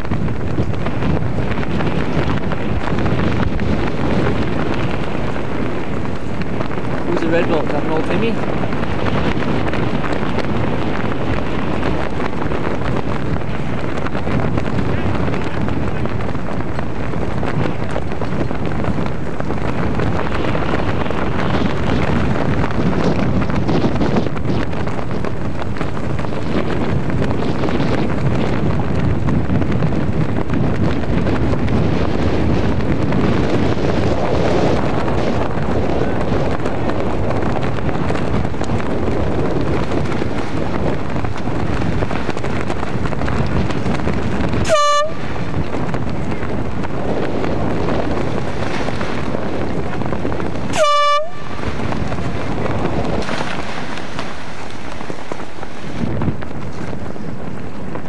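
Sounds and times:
wind on microphone: 0.0 - 58.0
air horn blasts: 44.6 - 45.3, 50.7 - 51.6.

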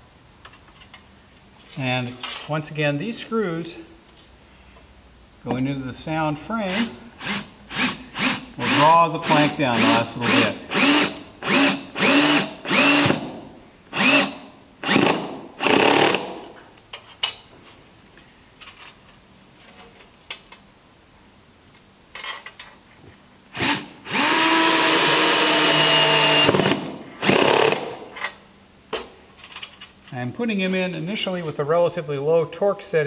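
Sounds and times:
cordless drill driving screws: 6.7 - 13.3, 14.0 - 16.4, 23.6 - 28.0.

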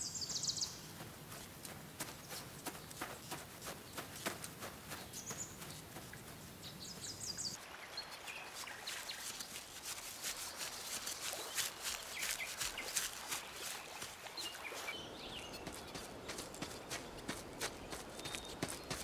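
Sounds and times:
bird chirps: 0.0 - 0.9, 4.9 - 5.8, 11.0 - 19.0
footsteps on grass and leaves: 0.0 - 19.0.

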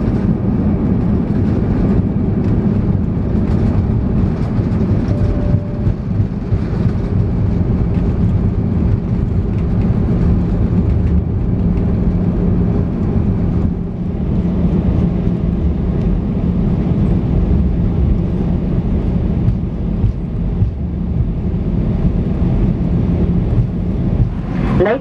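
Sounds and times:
aircraft cabin engine and rolling noise: 0.0 - 25.0
low hum: 3.4 - 9.4, 18.2 - 25.0.

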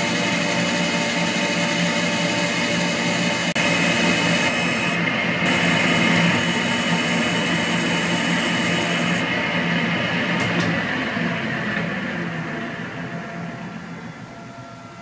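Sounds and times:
cutting tool hissing on metal: 0.0 - 9.2
metal lathe hum: 0.0 - 15.0.

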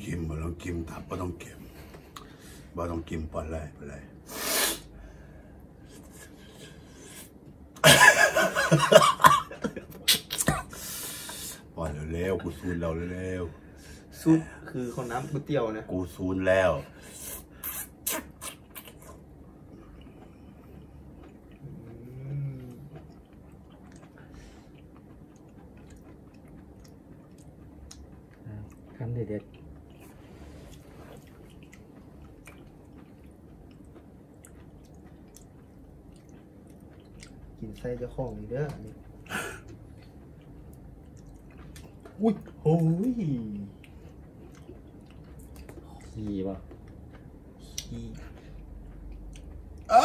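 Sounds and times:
closed-mouth hum: 0.0 - 50.0
short breathy burst: 4.3 - 5.2
man laughing loudly: 7.8 - 10.8
person chewing: 17.0 - 50.0.

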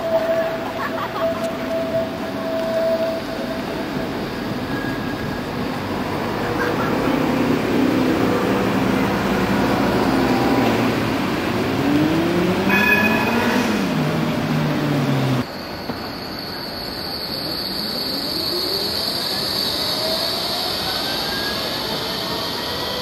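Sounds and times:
tram running noise: 0.0 - 23.0
rising whine: 8.1 - 15.4
steady high tone: 11.0 - 15.4.

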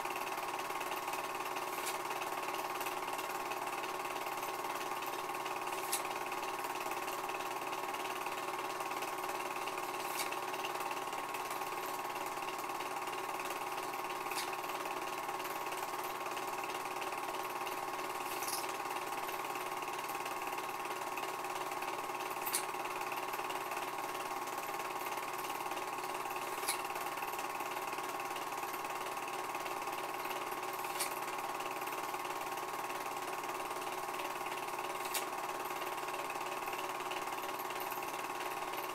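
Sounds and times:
film projector whirring: 0.0 - 38.9.

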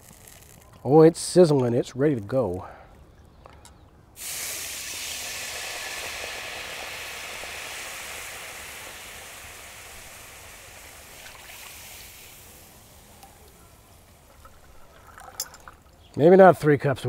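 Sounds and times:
water sizzling in hot skillet: 4.2 - 15.5.

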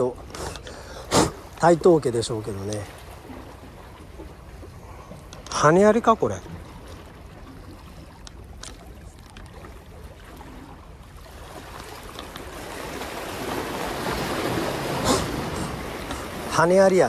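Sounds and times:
sea water washing: 0.0 - 17.0
wind: 0.0 - 17.0
faint ticks: 2.6 - 2.9, 4.7 - 5.6.

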